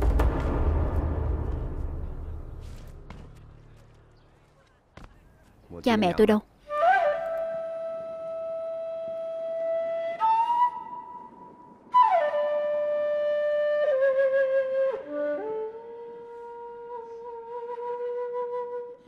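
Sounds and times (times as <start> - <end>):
solo flute melody: 6.6 - 19.0.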